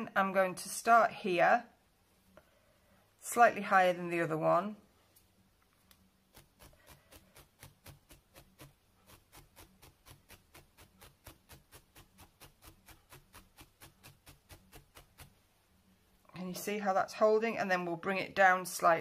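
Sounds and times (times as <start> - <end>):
felting needle stabbing wool: 5.9 - 15.5.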